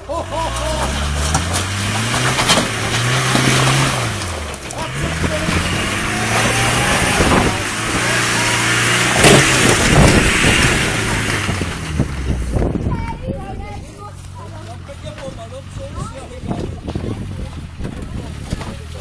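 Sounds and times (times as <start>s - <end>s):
car engine revving: 0.0s - 12.9s.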